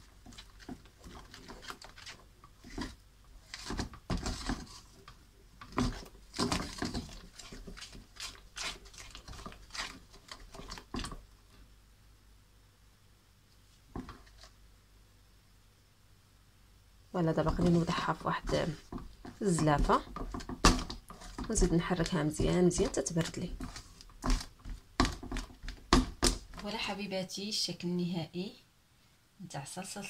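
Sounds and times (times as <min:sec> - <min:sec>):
wooden spoon scraping a pan: 0:00.0 - 0:11.2, 0:17.3 - 0:26.7.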